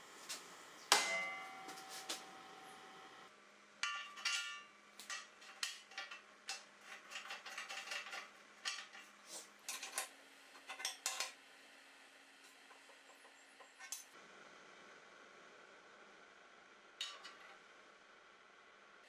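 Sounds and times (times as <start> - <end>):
metal parts clinking on steel frame: 3.8 - 9.1.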